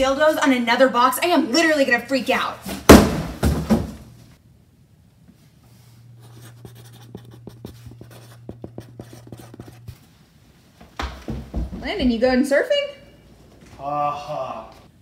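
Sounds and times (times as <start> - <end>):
thump: 2.8 - 4.0
marker pen writing on cardboard: 6.2 - 10.0.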